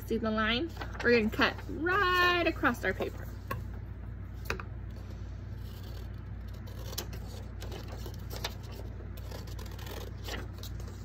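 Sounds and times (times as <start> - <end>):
paper rustling: 0.6 - 3.4, 5.0 - 11.0
scissors snipping paper: 5.7 - 11.0.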